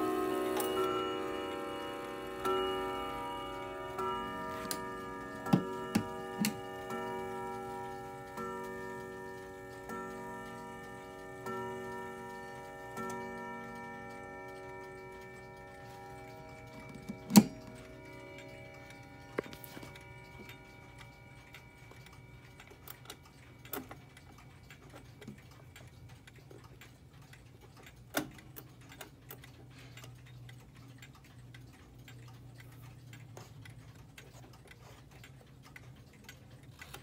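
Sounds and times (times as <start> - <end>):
clock chime strokes: 0.0 - 23.9
clock ticking: 0.0 - 37.0.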